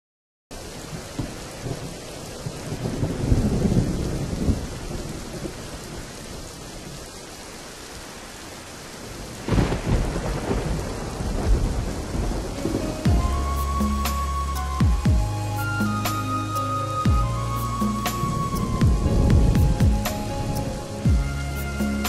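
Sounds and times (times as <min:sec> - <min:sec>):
steady rain: 0:00.5 - 0:22.0
thunder rumbling: 0:00.8 - 0:07.0, 0:09.0 - 0:22.0.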